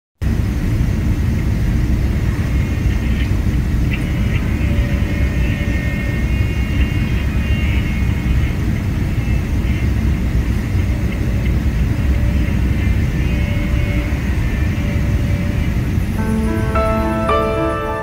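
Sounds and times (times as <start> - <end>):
faint high tones: 16.1 - 18.0.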